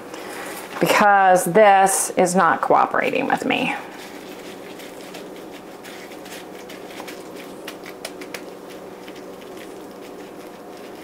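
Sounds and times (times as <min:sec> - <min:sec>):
steady background hum: 0:00.0 - 0:11.0
hands patting food in a bowl: 0:03.9 - 0:11.0.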